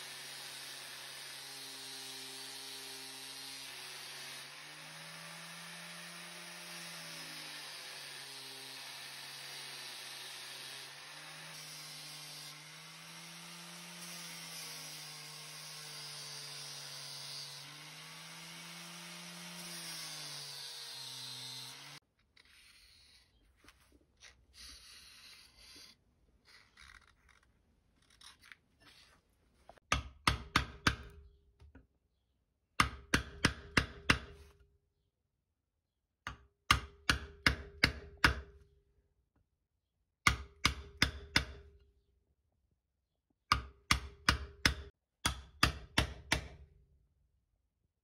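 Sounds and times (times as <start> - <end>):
hammer striking steel chisel: 29.8 - 31.4, 32.8 - 34.5, 36.2 - 38.5, 40.2 - 41.7, 43.5 - 46.7.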